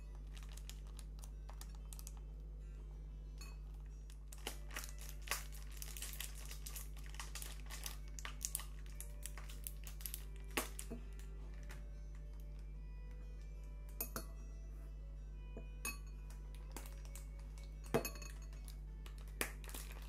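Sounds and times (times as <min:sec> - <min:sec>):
plastic tubes crinkling and clicking: 0:00.0 - 0:02.3, 0:03.7 - 0:12.6, 0:16.3 - 0:20.0
steady low hum: 0:00.0 - 0:20.0.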